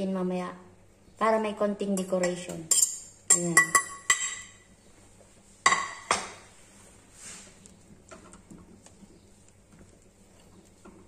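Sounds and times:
kitchenware clinking: 1.9 - 4.7, 5.6 - 6.4
wooden spoon stirring pot: 5.2 - 11.0.

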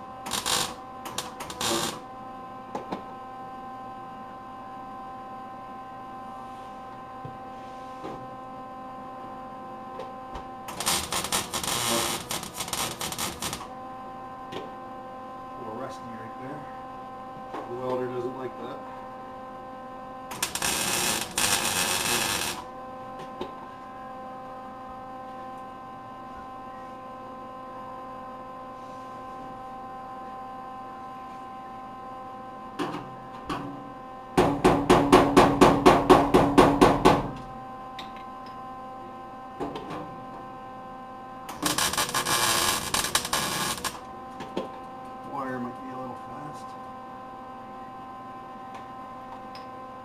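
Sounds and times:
electrical hum: 0.0 - 50.0
welder arc crackling: 0.3 - 2.0, 10.7 - 13.7, 20.3 - 22.7, 41.5 - 44.1.

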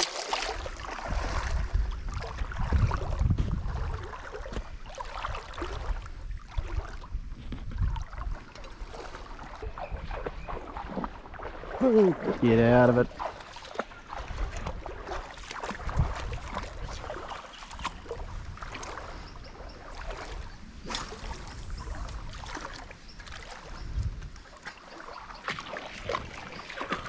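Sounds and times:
dull low thumps: 1.2 - 4.8.

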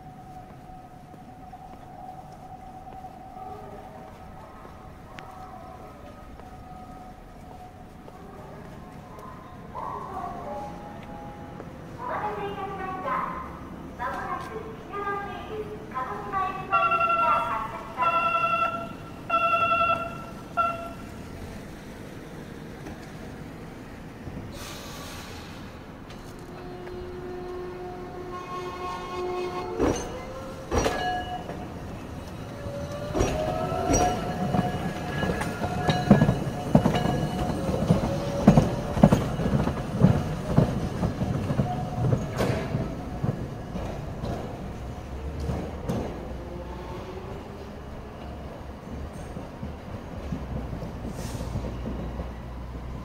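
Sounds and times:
tram running rumble: 0.0 - 53.0
tram bell ringing: 16.3 - 21.4, 26.5 - 45.2
air hiss: 24.5 - 25.8.

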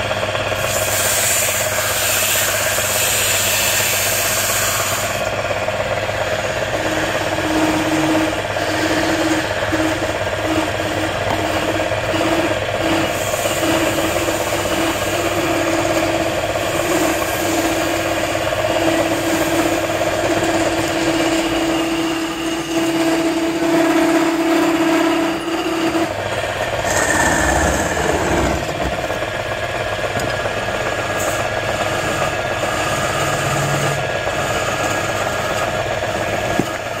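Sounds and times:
wood lathe running: 0.0 - 37.0
sandpaper on spinning wood: 0.6 - 5.3, 6.8 - 26.0.

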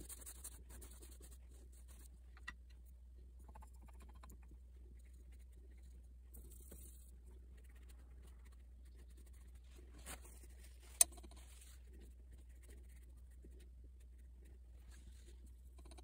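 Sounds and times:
paintbrush scratching on paper: 0.0 - 2.1, 4.8 - 15.6
low steady hum: 0.0 - 16.0
rustling: 7.9 - 12.8.

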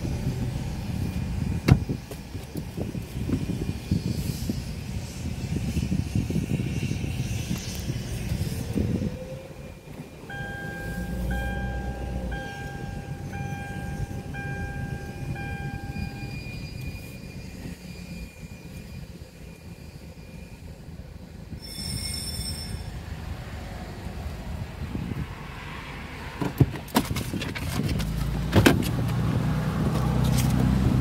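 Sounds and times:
car running noise: 0.0 - 21.6, 24.0 - 31.0
high-pitched whine: 0.0 - 23.5
electronic beeps: 10.3 - 17.3.

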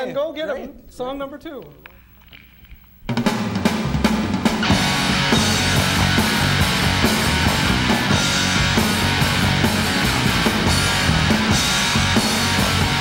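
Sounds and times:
bass guitar: 3.1 - 13.0
drum kit beat: 3.1 - 13.0
electric guitar: 4.4 - 13.0.

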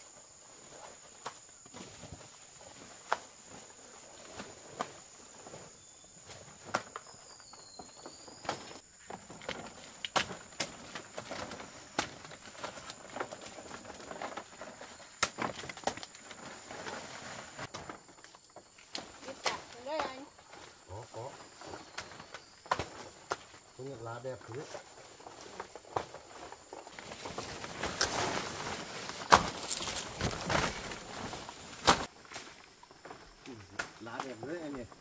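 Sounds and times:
footsteps through vegetation: 0.0 - 35.0
leaves rustling: 0.0 - 35.0
stalks snapping: 10.0 - 12.8, 33.4 - 34.4.

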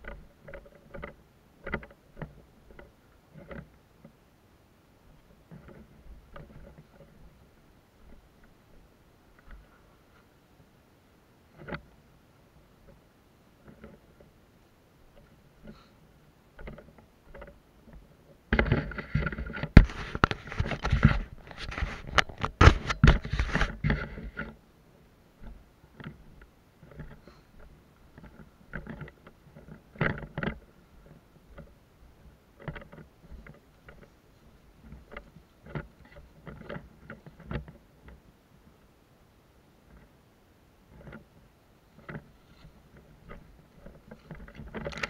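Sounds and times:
brush rustling and scraping: 15.0 - 24.6, 25.4 - 38.3, 40.9 - 45.0.

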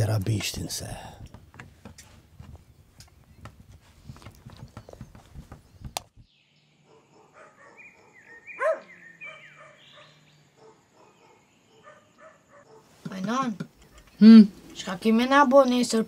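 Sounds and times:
dog barking loudly: 6.9 - 12.9
faint barks and yelps: 6.9 - 13.0.

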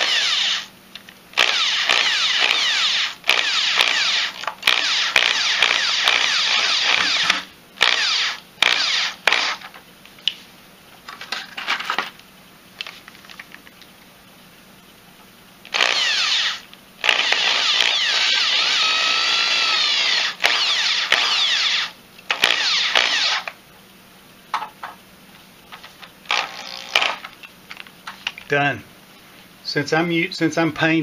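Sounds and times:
electric drill driving screws: 0.0 - 0.7, 1.4 - 9.6, 15.7 - 23.6, 26.3 - 27.3.

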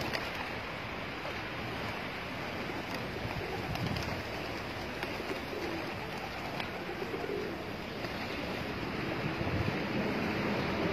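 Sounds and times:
pigeons cooing: 2.5 - 9.2.

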